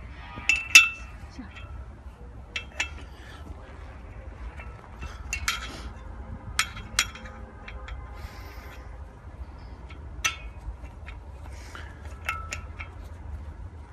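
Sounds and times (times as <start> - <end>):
steady low rumble: 0.0 - 13.9
metallic clinks of fence clip: 4.5 - 8.9, 9.8 - 13.2.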